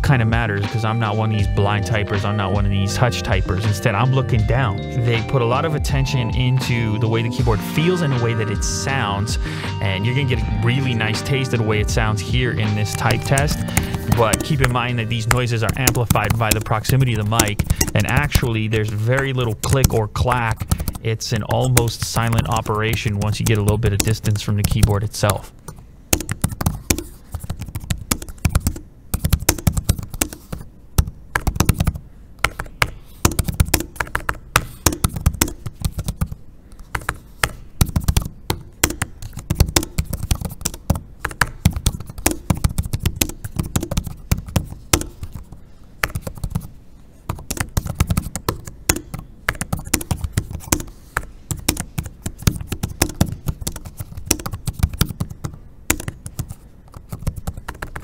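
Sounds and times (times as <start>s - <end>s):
laptop keyboard typing: 12.7s - 46.7s, 47.3s - 58.0s.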